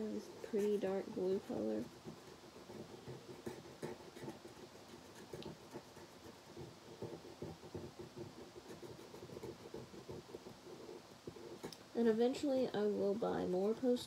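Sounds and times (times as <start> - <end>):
marker scratching on velvet: 0.0 - 12.1.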